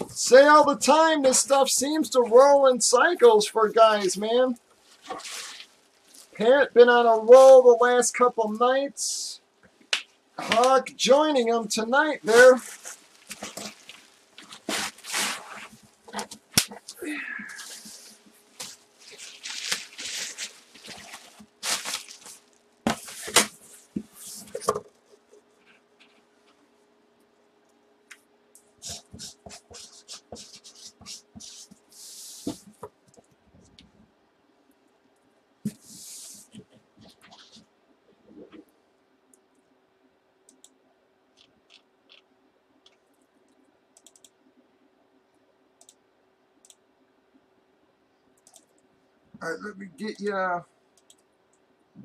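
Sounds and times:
faint steady hum: 0:00.0 - 0:52.0
cardboard box rustling and scraping: 0:12.7 - 0:15.8.

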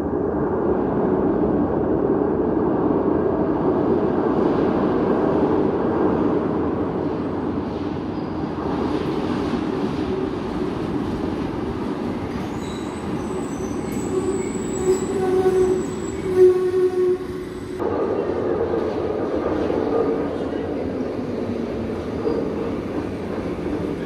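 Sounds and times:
subway train rumbling: 0:00.0 - 0:24.0
metallic wheel squeal: 0:12.5 - 0:17.3.

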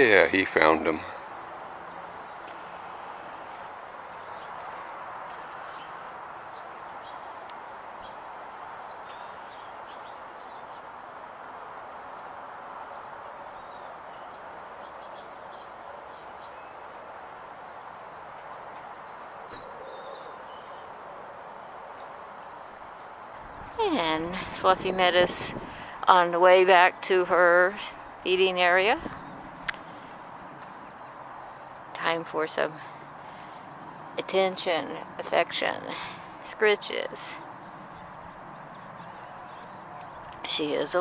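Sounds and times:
outdoor background noise: 0:00.0 - 0:41.0
bird chirps: 0:17.7 - 0:21.1, 0:29.0 - 0:30.1.

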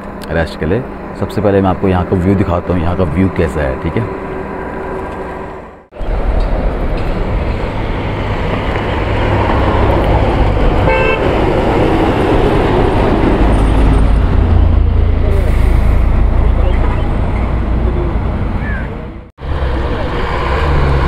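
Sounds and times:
vehicles passing: 0:00.0 - 0:21.0
vehicle horn toot: 0:10.8 - 0:11.3.

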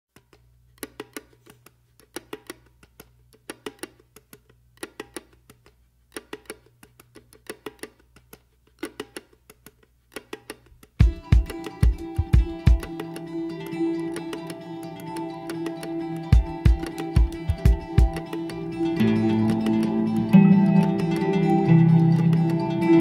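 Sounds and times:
sharp wooden clicks: 0:00.1 - 0:11.8.

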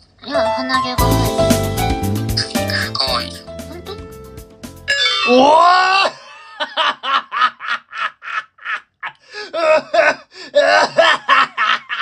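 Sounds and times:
man laughing hard: 0:05.2 - 0:12.0.

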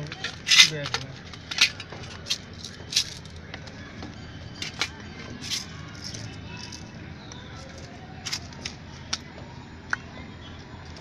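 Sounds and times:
metallic tool clicks and clinks: 0:00.0 - 0:03.4, 0:04.6 - 0:06.9
low background noise: 0:00.0 - 0:11.0.

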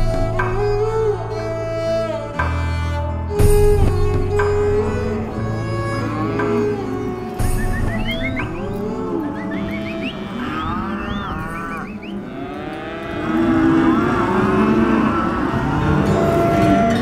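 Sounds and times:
cattle bawling: 0:05.0 - 0:17.0.

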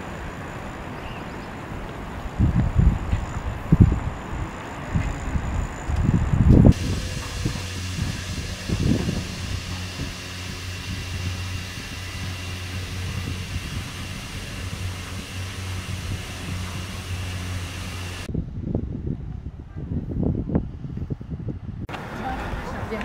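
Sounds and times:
faint high whine: 0:00.0 - 0:18.3
gondola lift machinery humming: 0:00.0 - 0:18.3
low rumble: 0:02.3 - 0:21.9.

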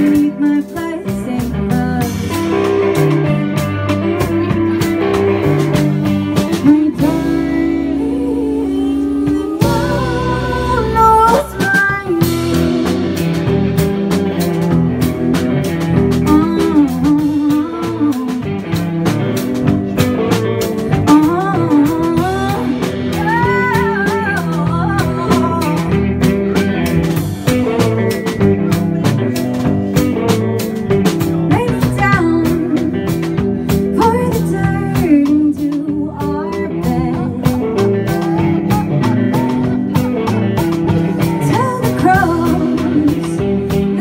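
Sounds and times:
person singing: 0:00.0 - 0:03.0, 0:06.2 - 0:13.2, 0:16.2 - 0:18.8, 0:20.6 - 0:26.9, 0:31.4 - 0:44.0
drums: 0:00.0 - 0:44.0
guitars: 0:00.0 - 0:44.0.

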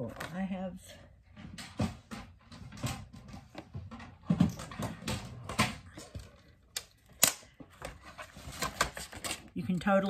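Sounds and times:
paper packaging rustling: 0:07.7 - 0:09.8.

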